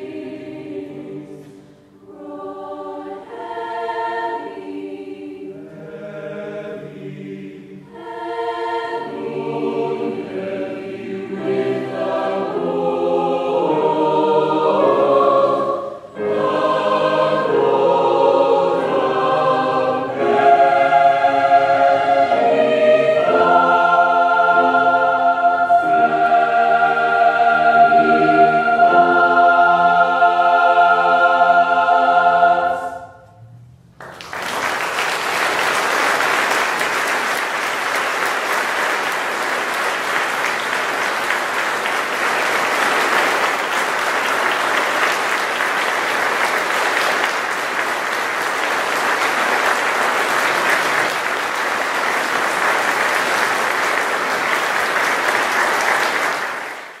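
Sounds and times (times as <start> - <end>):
choir singing a held chord: 0.0 - 33.7
audience applause: 34.0 - 57.0.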